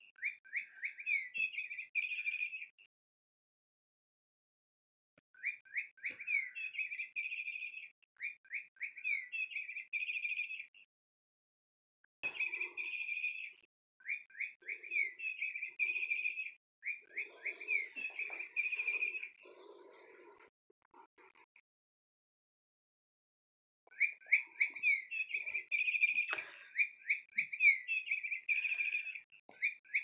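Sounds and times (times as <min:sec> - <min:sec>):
cat toy bird chirps: 0:23.9 - 0:30.0.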